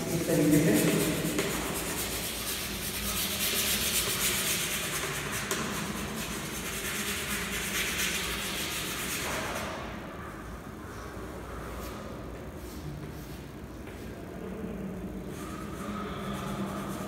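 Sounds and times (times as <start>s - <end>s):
chalk scratching on chalkboard: 0.3s - 9.8s, 15.3s - 17.0s.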